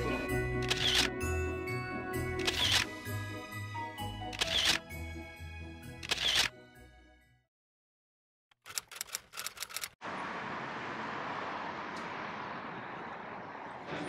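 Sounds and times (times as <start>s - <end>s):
city traffic noise: 0.0s - 1.1s, 8.7s - 14.0s
camera shutter clicks: 0.6s - 1.1s, 2.4s - 2.9s, 4.3s - 4.8s, 6.0s - 6.5s.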